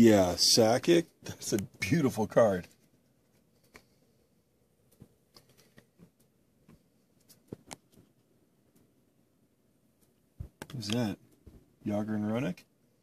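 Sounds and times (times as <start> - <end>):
faint clicks and taps: 2.6 - 4.1, 4.8 - 9.0, 9.9 - 11.8.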